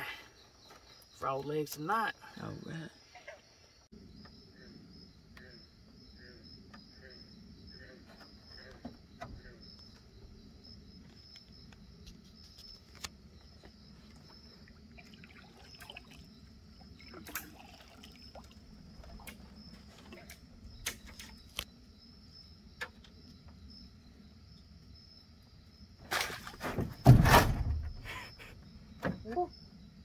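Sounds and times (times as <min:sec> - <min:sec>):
insects chirring: 0:00.0 - 0:30.0
water sloshing: 0:14.4 - 0:20.3.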